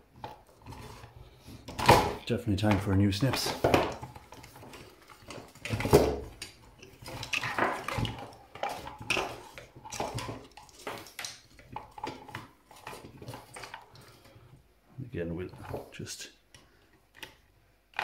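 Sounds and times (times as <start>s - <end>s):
clicks and clattering of parts: 0.1s - 14.4s, 16.5s - 18.0s
parts knocking against metal case: 1.6s - 13.8s.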